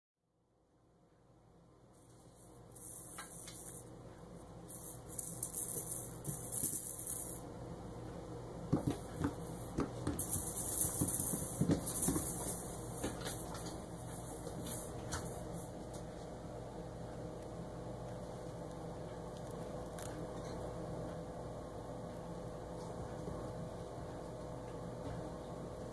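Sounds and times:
low hum: 0.7s - 25.9s.

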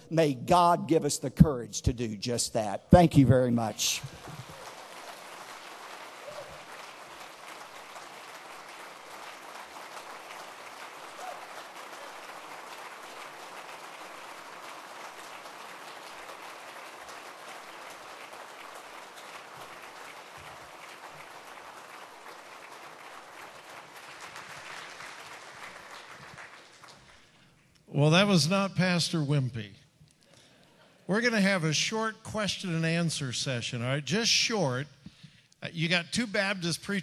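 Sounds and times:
audience applauding: 3.6s - 27.4s.

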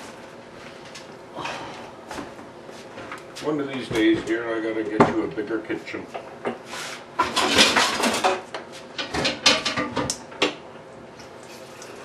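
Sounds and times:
things clattering on kitchen counter: 6.2s - 10.6s.

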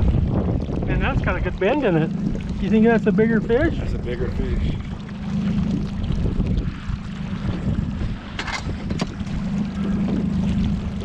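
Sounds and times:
outboard motor running: 0.0s - 11.0s
wind on microphone: 0.0s - 11.0s.

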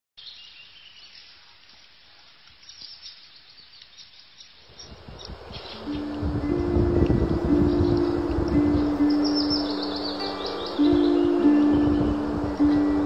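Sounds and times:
faint bird and insect chirps: 0.2s - 13.0s
music with held notes: 5.7s - 13.0s.

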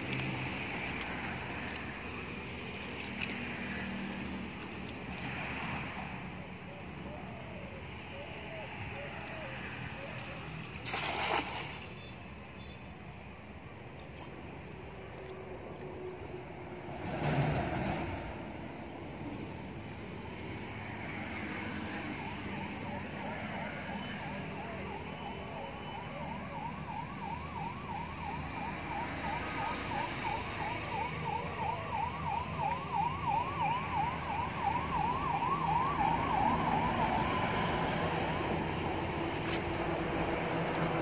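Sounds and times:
traffic running: 0.0s - 41.0s
vehicle siren sweeping: 20.8s - 40.8s.

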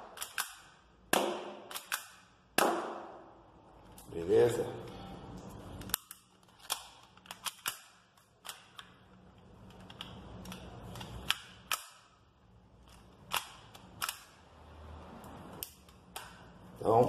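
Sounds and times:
pistol slide metallic clicks: 0.1s - 0.7s, 1.7s - 2.2s.

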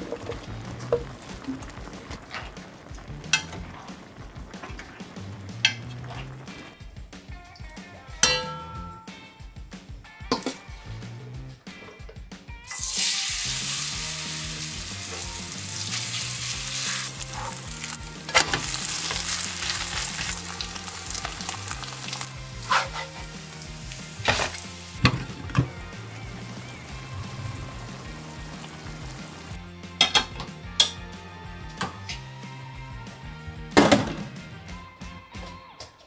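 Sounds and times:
batter sizzling in hot oil: 0.0s - 6.9s, 12.7s - 29.6s
faint background music: 0.0s - 36.0s
utensil clinking on pan: 8.2s - 9.2s.

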